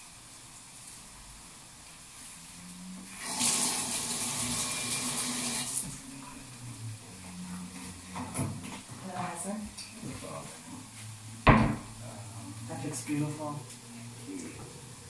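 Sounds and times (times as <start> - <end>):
kitchen tap running: 3.1 - 6.2.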